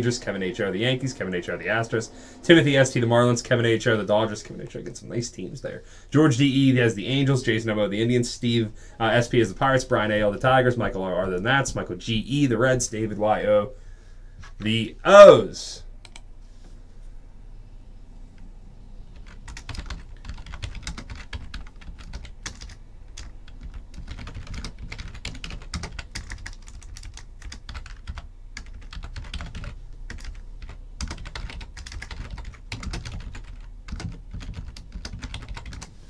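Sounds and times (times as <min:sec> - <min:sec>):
computer keyboard typing: 0:19.2 - 0:35.9.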